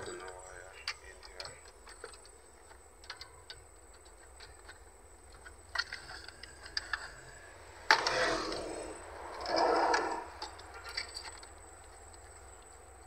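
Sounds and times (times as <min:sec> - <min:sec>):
metal scraping: 0:04.5 - 0:12.4.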